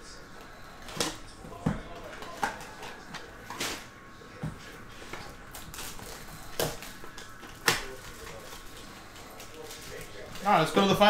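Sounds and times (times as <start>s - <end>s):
plastic wrap crinkling: 4.9s - 11.0s.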